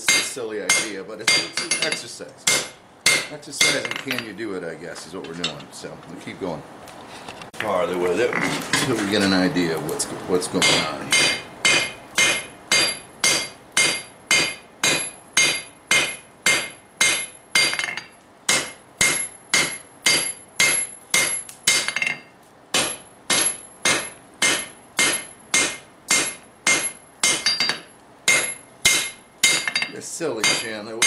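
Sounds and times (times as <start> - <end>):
hammer striking hot steel on anvil: 0.0 - 4.4, 10.6 - 31.0.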